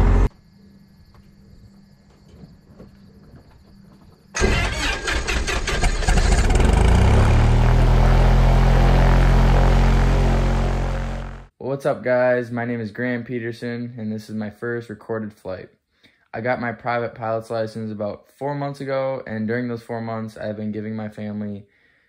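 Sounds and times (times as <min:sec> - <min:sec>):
propeller engine starting and idling: 0:00.0 - 0:00.3, 0:04.4 - 0:11.5.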